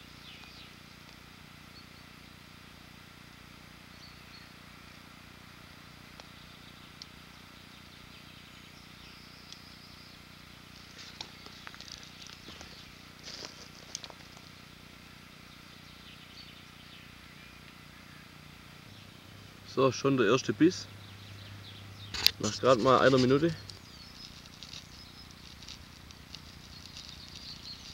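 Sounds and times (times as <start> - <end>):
faint outdoor hiss: 0.0 - 27.9
fishing reel clicks and rustles: 22.1 - 27.9.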